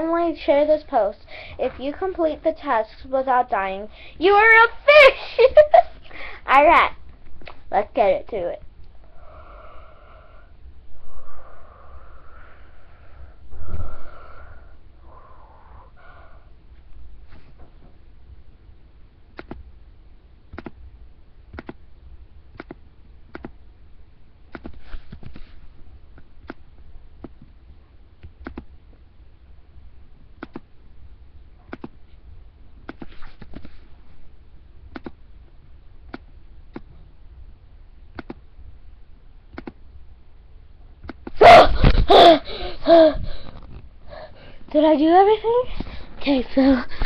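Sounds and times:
computer mouse clicking: 19.4s - 19.6s, 20.5s - 20.8s, 21.5s - 21.8s, 22.5s - 23.6s, 24.5s - 25.5s, 26.2s - 26.6s, 28.2s - 28.7s, 30.4s - 30.7s, 31.7s - 32.0s, 32.8s - 33.8s, 34.9s - 35.2s, 38.1s - 38.4s, 39.5s - 39.8s.

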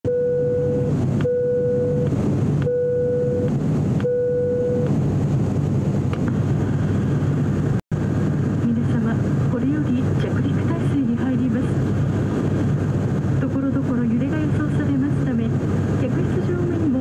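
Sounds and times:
short beep: 0.1s - 4.9s
aircraft cabin drone: 0.1s - 17.0s.

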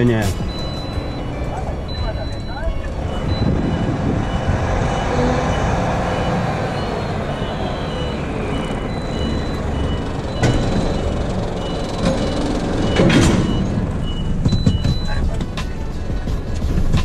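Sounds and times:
electronic warning beeps: 0.0s - 15.3s
truck diesel engine rumbling: 0.0s - 17.0s
clunk: 10.3s - 15.7s.

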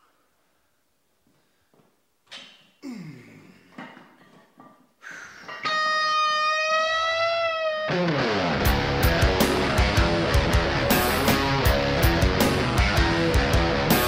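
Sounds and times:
electric guitar notes and bends: 5.6s - 14.0s.

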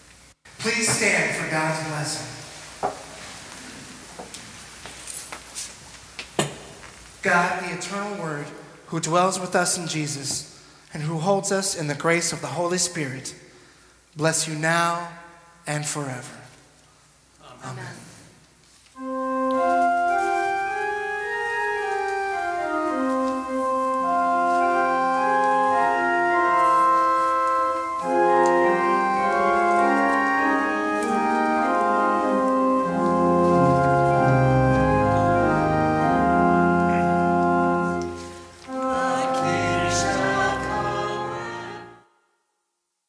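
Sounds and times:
low organ pedal notes: 19.0s - 42.0s
pipe organ chords: 19.0s - 42.1s.

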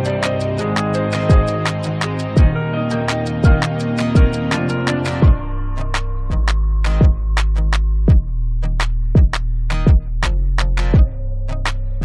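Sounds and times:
sustained synth chords: 0.0s - 10.1s
deep kick drum: 1.3s - 1.6s, 2.4s - 2.6s, 3.4s - 4.5s, 5.2s - 5.6s, 6.3s - 11.2s.

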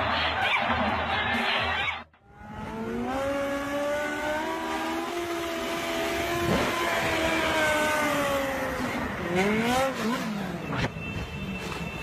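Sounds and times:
engine revving: 2.2s - 10.8s.

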